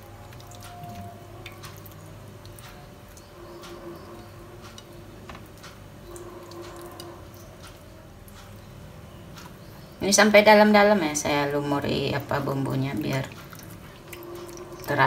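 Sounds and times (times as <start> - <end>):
wet squishing of hands: 0.0 - 3.8, 13.0 - 15.0.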